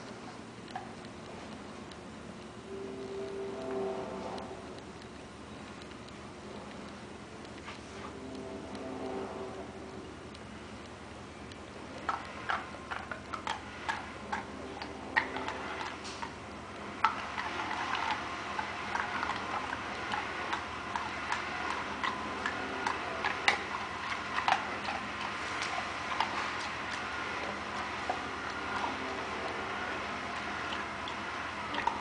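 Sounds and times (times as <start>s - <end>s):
dog chewing with open mouth: 11.8s - 32.0s.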